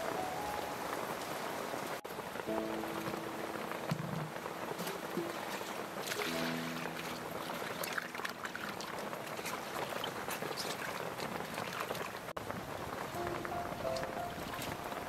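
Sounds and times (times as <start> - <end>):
small knocks: 3.9 - 5.4
vegetables rubbed and rinsed: 4.0 - 12.3
water pouring into steel basin: 4.8 - 12.2.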